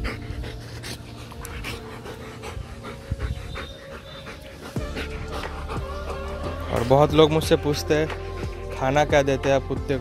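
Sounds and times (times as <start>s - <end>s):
dog panting: 0.0s - 8.9s.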